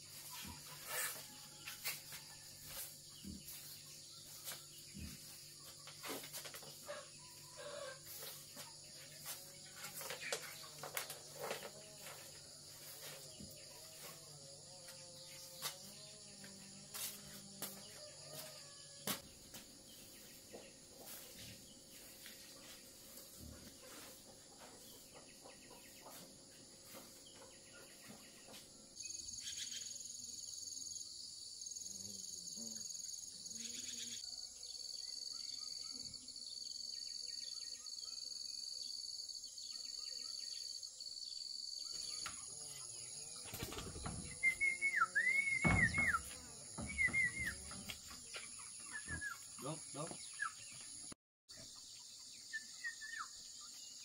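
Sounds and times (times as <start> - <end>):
high insect trill: 0.0 - 19.2, 29.0 - 50.6
insects trilling: 0.0 - 20.4, 27.8 - 54.0.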